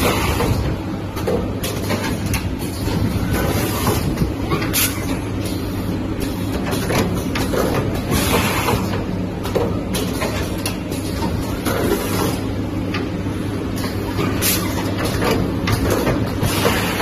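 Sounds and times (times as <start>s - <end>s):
pneumatic air hiss and clacks: 1.6s - 9.1s, 13.8s - 17.0s.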